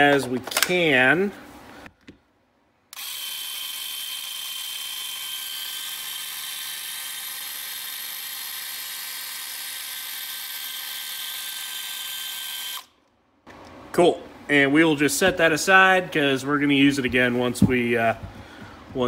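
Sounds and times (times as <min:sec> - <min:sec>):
thin motor whine: 0:02.9 - 0:12.9.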